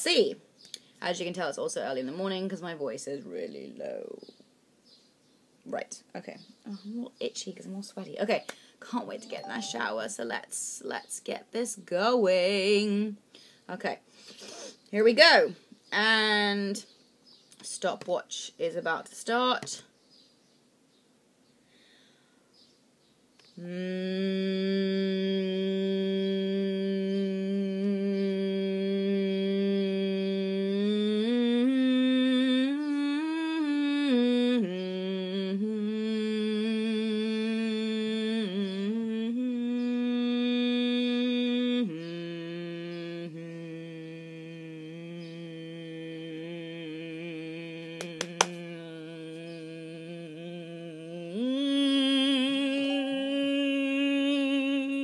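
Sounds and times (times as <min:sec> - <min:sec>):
woman humming: 0:09.1 - 0:09.9, 0:23.6 - 0:55.0.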